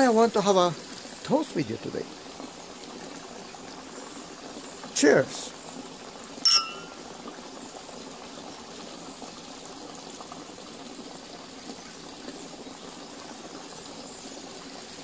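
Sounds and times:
water running from fountain: 0:00.0 - 0:15.0.

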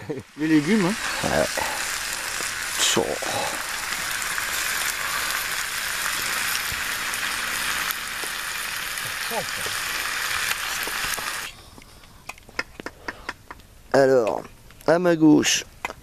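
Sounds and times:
food sizzling in a pan: 0:00.0 - 0:11.6.

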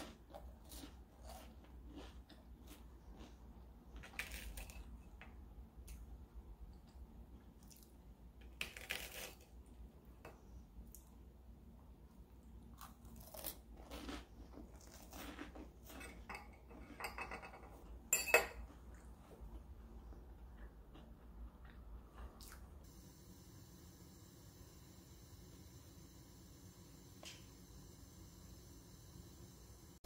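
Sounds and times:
crunching and chewing bread: 0:00.0 - 0:06.0, 0:06.8 - 0:09.9, 0:12.1 - 0:17.0, 0:18.6 - 0:22.8.

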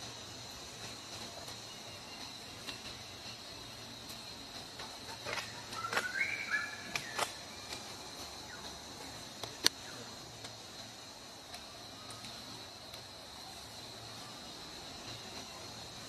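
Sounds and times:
insects calling high-pitched: 0:00.0 - 0:16.0.

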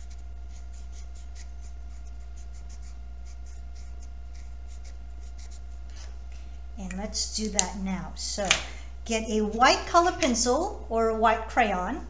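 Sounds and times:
pencil scratching on paper: 0:00.0 - 0:06.1
steady low hum: 0:00.0 - 0:12.0.

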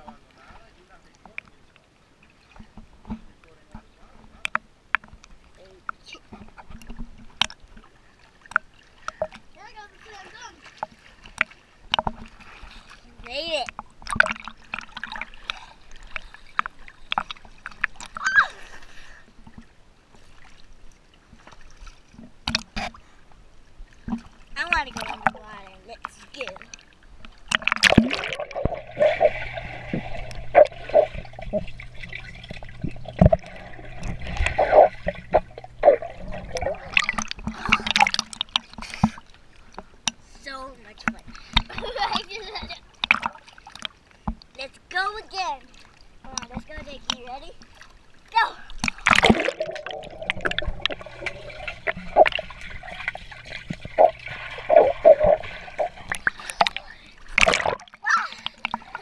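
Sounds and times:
water splashing: 0:00.0 - 0:59.0
muffled underwater bubbles: 0:27.5 - 0:39.2, 0:48.6 - 0:59.0
steady low hum: 0:27.8 - 0:38.5, 0:48.9 - 0:57.8.

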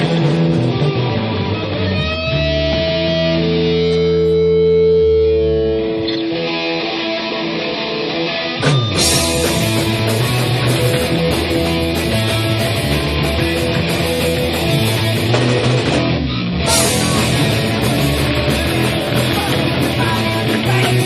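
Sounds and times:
distorted guitar chords ringing: 0:00.0 - 0:21.0
punk band playing live: 0:00.0 - 0:21.0
drum and cymbal hit: 0:08.6 - 0:15.8, 0:16.7 - 0:21.0.

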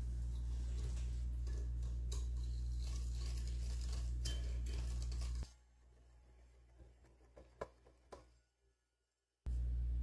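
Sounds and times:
low hum: 0:09.5 - 0:10.0.

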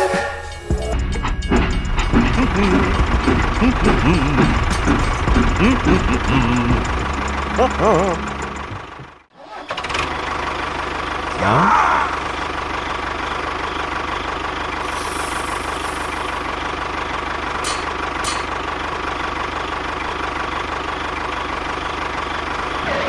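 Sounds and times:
tractor engine chugging: 0:00.0 - 0:23.0
hiss: 0:14.8 - 0:16.5.

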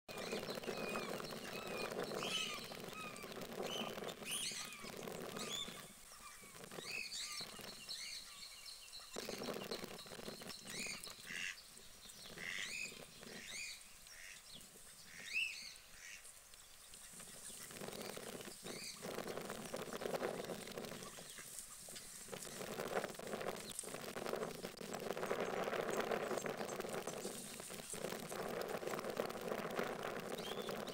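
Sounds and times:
guinea pig squeaking: 0:00.1 - 0:07.6.

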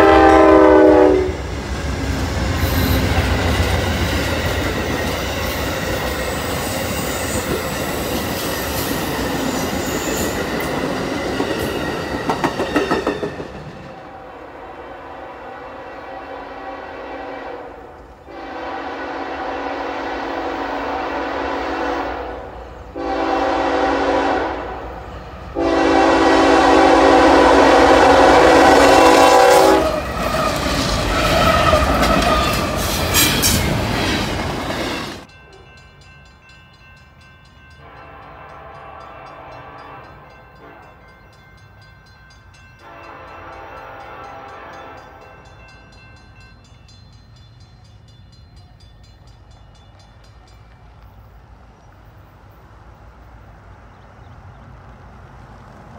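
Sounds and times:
locomotive horn blasts: 0:00.0 - 0:01.4, 0:14.1 - 0:25.0, 0:25.6 - 0:30.0, 0:37.8 - 0:41.0, 0:42.8 - 0:45.4
distant locomotive horn: 0:00.0 - 0:03.9, 0:13.9 - 0:33.6, 0:37.7 - 0:41.2, 0:42.8 - 0:45.7
train wheel clatter: 0:01.8 - 0:14.0, 0:29.8 - 0:35.3.

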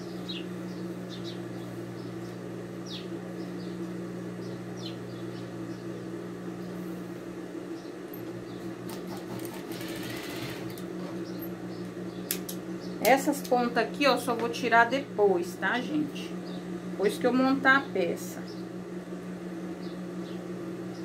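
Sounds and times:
birds chirping: 0:00.0 - 0:07.0, 0:07.7 - 0:14.9, 0:16.0 - 0:17.0, 0:17.7 - 0:18.8, 0:19.7 - 0:21.0
sewing machine motor hum: 0:08.1 - 0:11.8.

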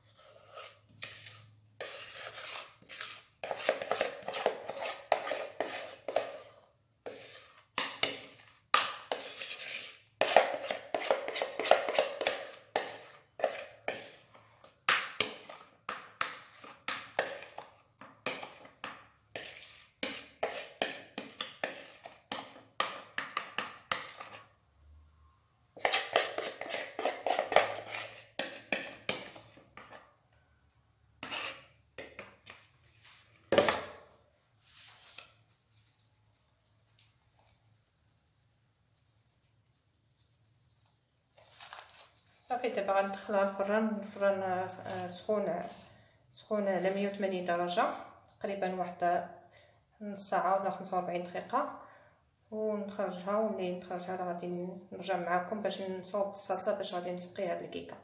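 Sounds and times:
utensil scraping a metal pan: 0:00.0 - 0:24.5, 0:25.8 - 0:30.0, 0:31.2 - 0:32.6.

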